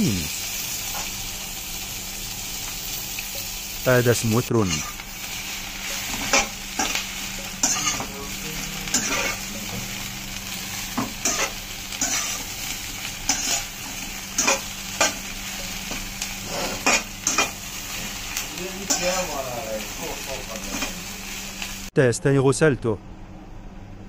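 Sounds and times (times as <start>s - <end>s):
food sizzling: 0.0s - 21.9s
metal spatula scraping wok: 4.6s - 10.0s, 10.7s - 19.3s.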